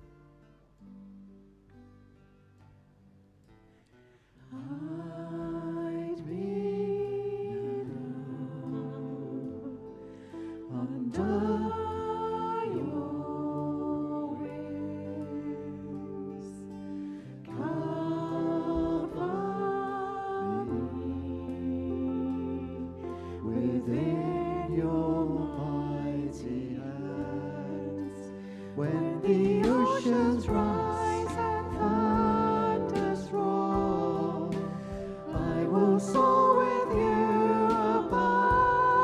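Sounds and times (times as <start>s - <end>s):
women singing: 4.5s - 39.0s
bass line: 10.9s - 39.0s.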